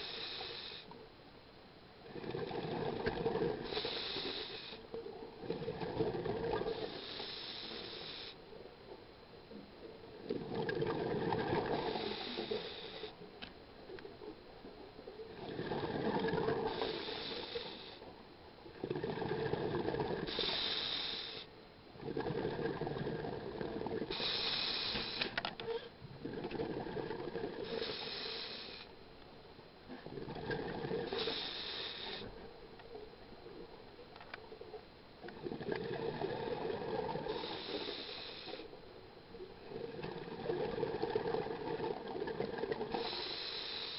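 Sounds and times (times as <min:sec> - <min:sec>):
regulator inhale hiss: 0:00.0 - 0:01.0, 0:03.5 - 0:05.0, 0:06.6 - 0:08.5, 0:11.7 - 0:13.3, 0:16.6 - 0:18.1, 0:20.1 - 0:21.6, 0:24.0 - 0:25.9, 0:27.6 - 0:29.0, 0:30.9 - 0:32.6, 0:36.2 - 0:38.8, 0:42.9 - 0:43.9.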